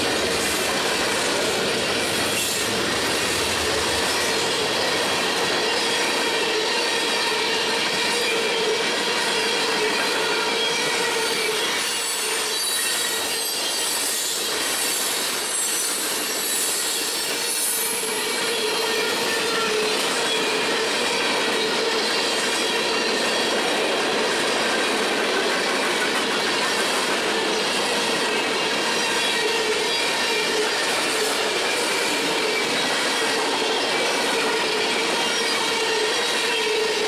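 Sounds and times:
steel wheels rumbling on rail: 0.0s - 37.0s
high-pitched wheel squeal: 5.7s - 23.5s.

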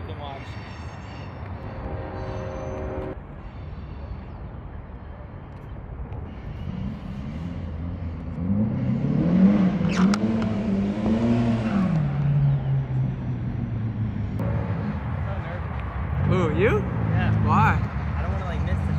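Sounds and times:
car engine revving: 6.6s - 18.9s.

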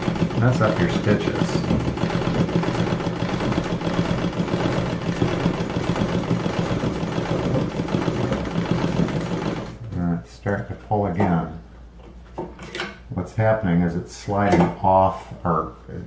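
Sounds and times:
sewing machine running: 0.0s - 9.8s.

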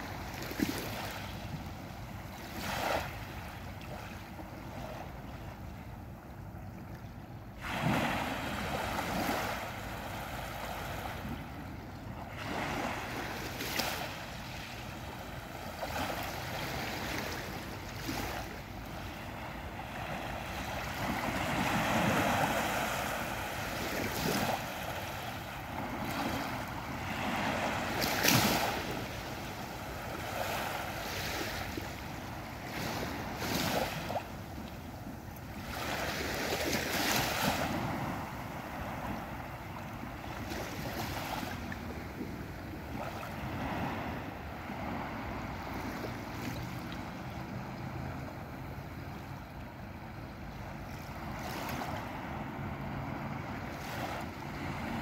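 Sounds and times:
waves lapping on pebble beach: 12.2s - 34.6s, 35.6s - 48.4s.

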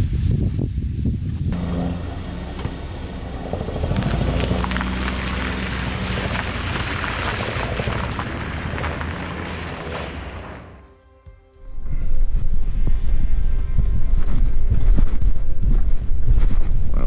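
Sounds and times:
vehicle engine hum: 1.4s - 10.9s
road noise: 1.5s - 11.0s.

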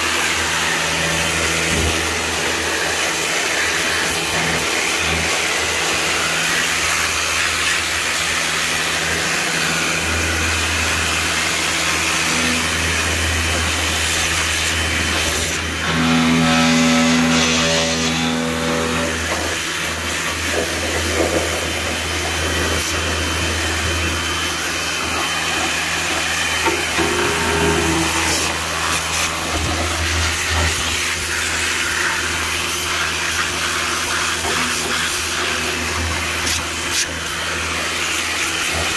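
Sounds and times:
pressure washer pump humming: 0.0s - 38.9s
water jet hissing: 19.4s - 38.9s.

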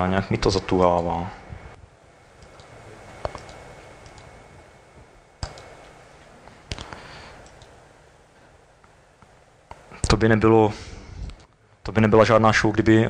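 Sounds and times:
faint room noise: 0.0s - 13.0s
laptop keys and mouse clicks: 2.4s - 4.3s, 5.4s - 5.9s.

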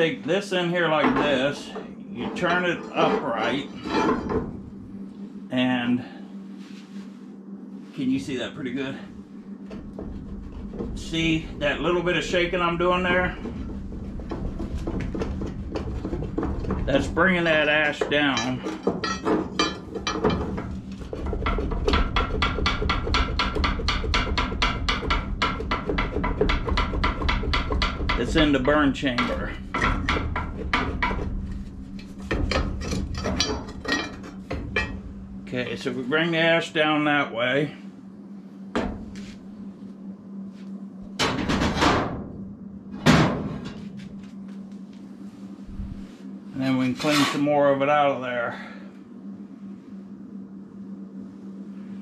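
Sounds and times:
metal grate knocking and rattling: 18.1s - 31.4s, 32.2s - 35.0s
metal rake scraping on steel: 46.8s - 47.5s.

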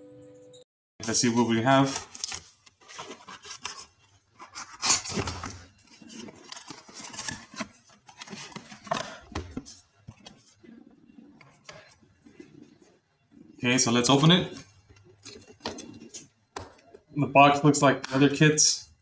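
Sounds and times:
cardboard flaps rustling: 1.7s - 10.7s.

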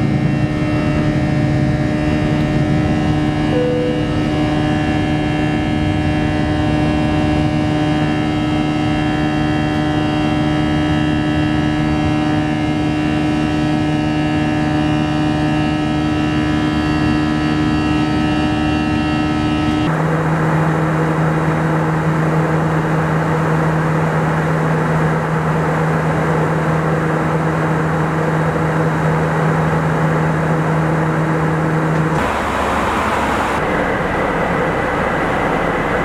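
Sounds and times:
constant whining tones: 0.0s - 26.6s
jet engines droning in cabin: 0.0s - 36.0s.

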